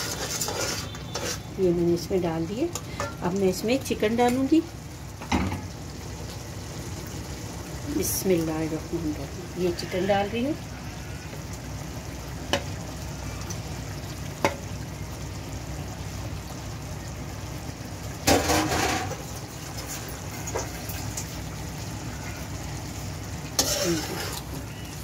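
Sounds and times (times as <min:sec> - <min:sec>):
wet splash and sizzle: 0:00.0 - 0:25.0.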